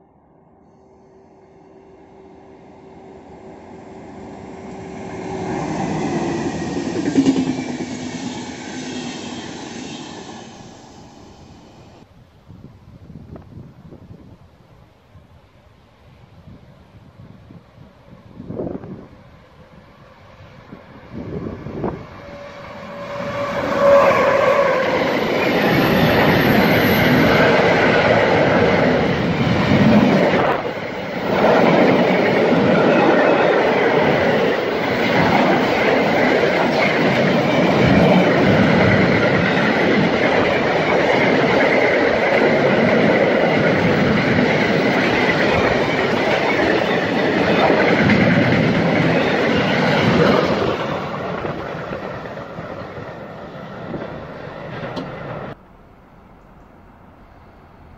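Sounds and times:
freight train passing: 0:00.0 - 0:12.1, 0:13.2 - 0:57.9.

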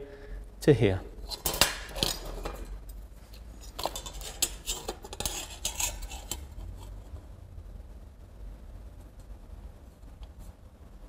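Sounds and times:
metallic clinks and scrapes: 0:01.2 - 0:06.9.

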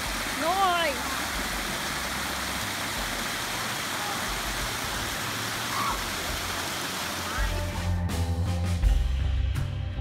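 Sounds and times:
creek water rushing over rocks: 0:00.0 - 0:08.0.

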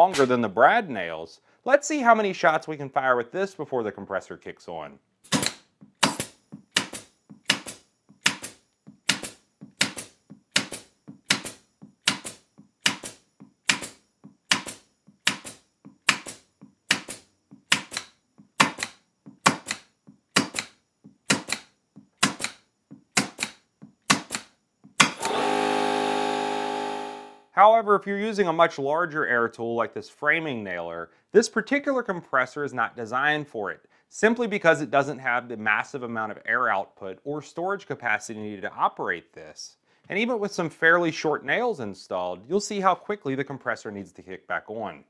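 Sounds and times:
pin nailer firing into wood: 0:05.3 - 0:22.6, 0:23.2 - 0:27.2
air compressor running: 0:25.0 - 0:27.5.

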